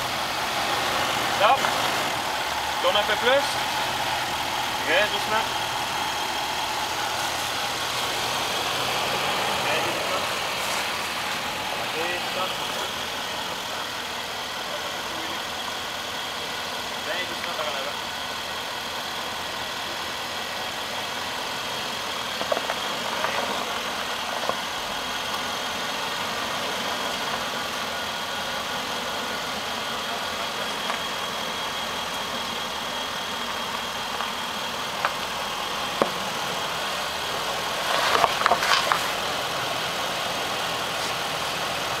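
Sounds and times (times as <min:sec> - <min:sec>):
high thin whine: 0:00.0 - 0:15.4
suv engine idling: 0:00.0 - 0:42.0
tyres crunching on rock and gravel: 0:00.2 - 0:13.7, 0:22.3 - 0:25.5, 0:33.7 - 0:42.0.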